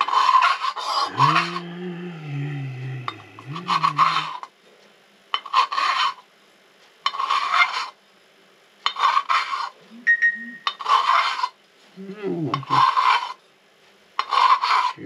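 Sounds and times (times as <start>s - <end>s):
metal filing strokes: 0.0s - 1.5s, 5.4s - 6.2s, 8.9s - 9.8s, 10.7s - 11.6s, 12.6s - 13.4s, 14.2s - 15.0s.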